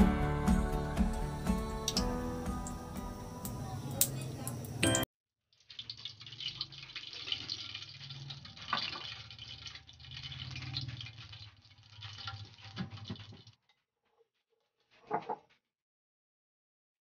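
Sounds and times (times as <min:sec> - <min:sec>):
oil crackling in a wok: 0:01.8 - 0:04.8, 0:05.4 - 0:15.0.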